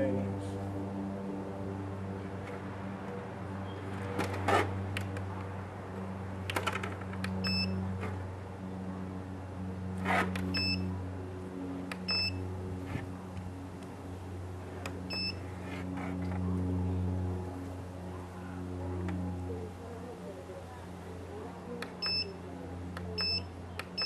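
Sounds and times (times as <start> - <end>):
steady low hum: 0.0 - 24.0
short electronic beeps: 7.4 - 7.8, 10.6 - 10.8, 12.1 - 12.4, 15.1 - 15.4, 23.2 - 24.0.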